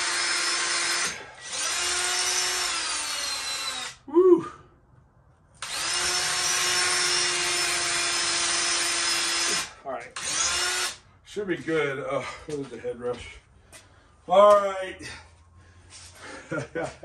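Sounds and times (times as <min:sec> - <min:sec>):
cordless drill drilling concrete: 0:00.0 - 0:04.0, 0:05.6 - 0:11.0.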